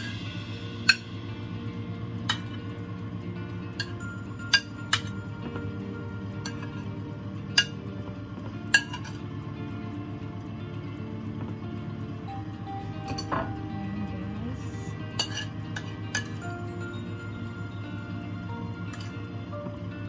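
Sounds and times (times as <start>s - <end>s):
background music: 0.0s - 20.0s
metal spoon clinking on ceramic plate: 8.8s - 9.2s, 15.2s - 16.4s.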